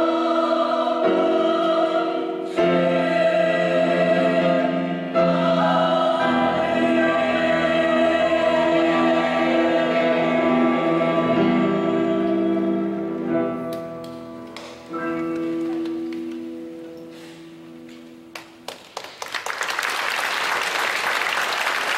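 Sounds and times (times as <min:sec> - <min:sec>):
mixed choir singing chords: 0:00.0 - 0:13.7
scattered claps: 0:18.3 - 0:21.9
audience applause: 0:18.6 - 0:21.9.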